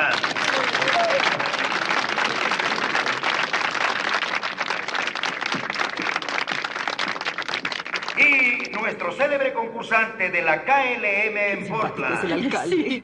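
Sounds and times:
crowd applauding: 0:00.0 - 0:08.9.

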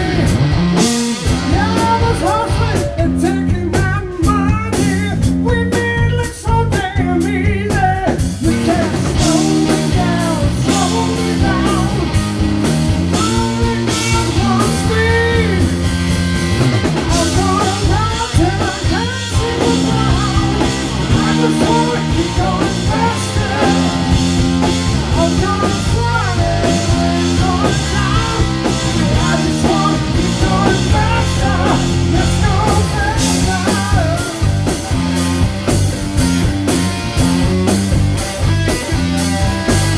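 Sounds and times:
electric guitar: 0:00.0 - 0:39.9
live rock band: 0:00.0 - 0:39.9
male lead vocal: 0:01.2 - 0:12.3, 0:13.0 - 0:15.8, 0:16.9 - 0:34.9.

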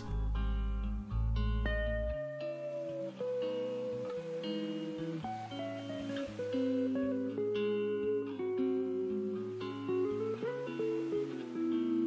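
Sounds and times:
instrumental guitar music: 0:00.0 - 0:12.0.

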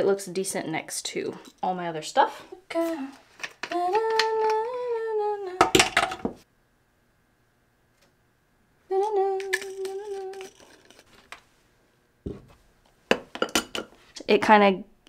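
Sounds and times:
woman humming: 0:02.5 - 0:03.2, 0:03.8 - 0:05.7, 0:08.9 - 0:10.7.

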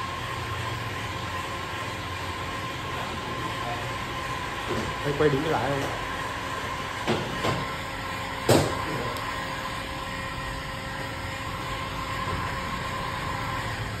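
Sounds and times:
heat gun blowing: 0:05.8 - 0:14.0
sharp knock: 0:08.5 - 0:08.8.

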